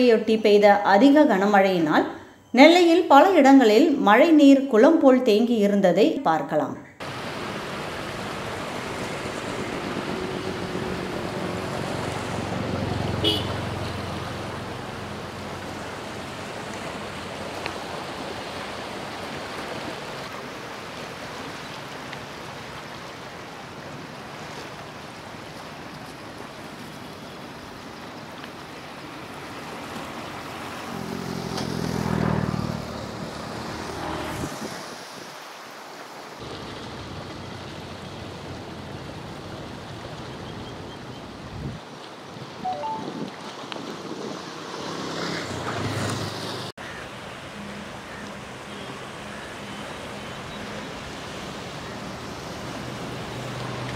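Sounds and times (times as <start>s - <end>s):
river water rushing: 7.0s - 53.9s
wind noise on microphone: 34.3s - 35.4s, 41.3s - 44.4s.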